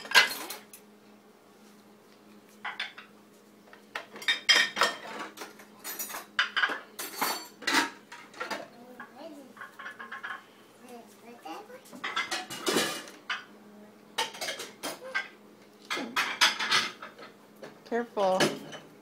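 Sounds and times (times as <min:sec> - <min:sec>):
metal cutlery clinking: 0:04.2 - 0:08.5.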